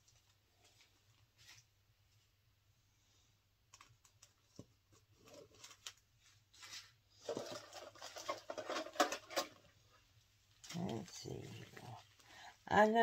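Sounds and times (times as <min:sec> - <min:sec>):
plastic baggie rustling: 0:04.0 - 0:09.7.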